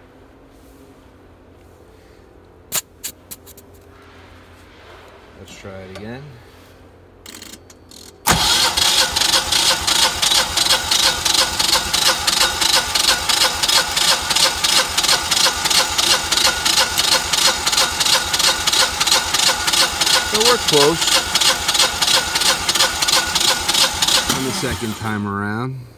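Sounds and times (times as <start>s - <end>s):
engine cranking: 7.3s - 25.2s.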